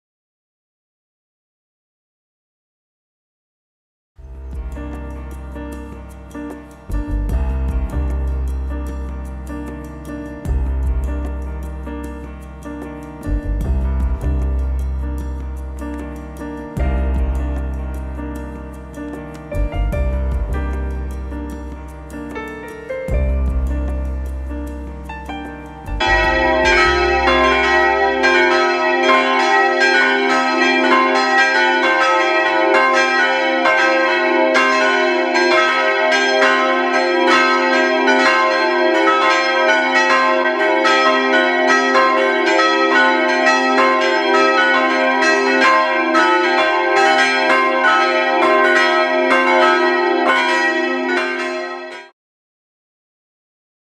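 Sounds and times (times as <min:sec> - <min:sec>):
church bells ringing: 0:20.6 - 0:52.1.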